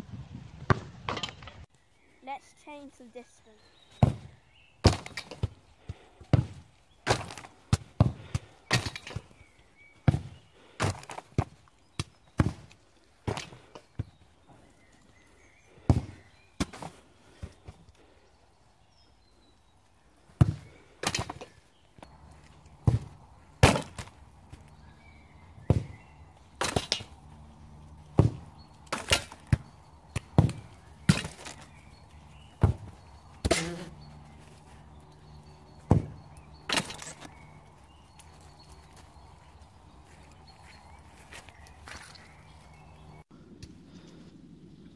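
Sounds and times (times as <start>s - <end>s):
footballs being kicked: 0.6s - 1.4s, 4.0s - 9.3s, 10.0s - 14.2s, 15.8s - 17.8s, 20.3s - 24.8s, 25.5s - 34.8s, 35.8s - 37.2s.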